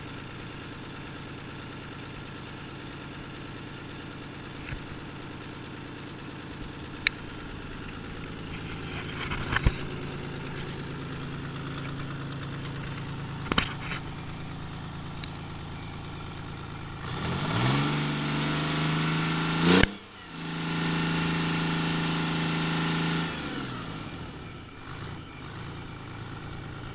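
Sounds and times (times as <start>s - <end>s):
diesel engine idling and revving: 0.0s - 26.9s.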